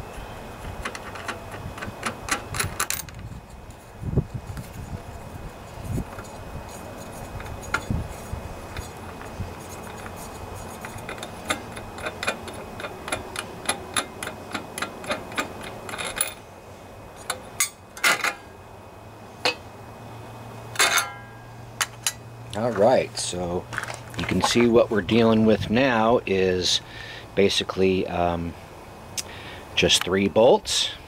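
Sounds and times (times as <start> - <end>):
metal parts clattering: 15.0 - 16.4.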